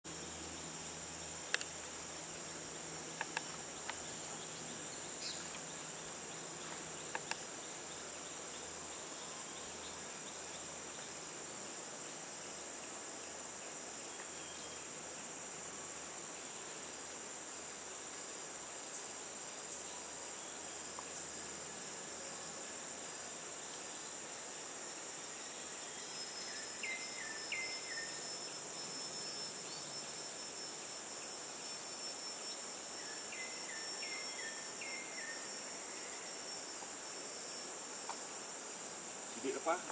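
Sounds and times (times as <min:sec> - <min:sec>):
insects droning: 0:00.0 - 0:39.9
sharp clicks: 0:01.5 - 0:01.7, 0:07.1 - 0:07.4.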